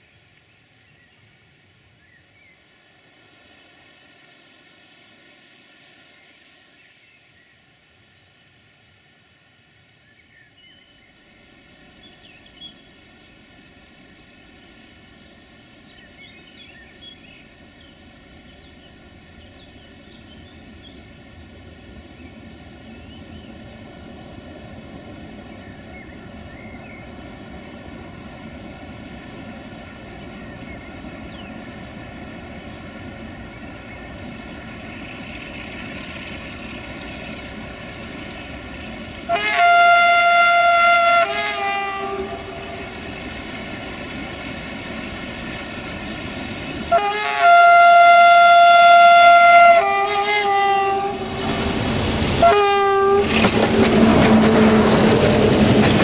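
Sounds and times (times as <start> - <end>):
diesel locomotive rumble: 11.5 - 56.0.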